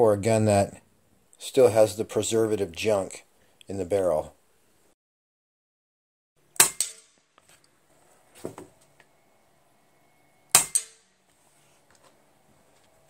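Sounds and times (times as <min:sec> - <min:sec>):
air rifle shots: 0:06.6 - 0:07.2, 0:10.5 - 0:11.1
pellet striking target: 0:06.6 - 0:07.3, 0:10.5 - 0:11.1.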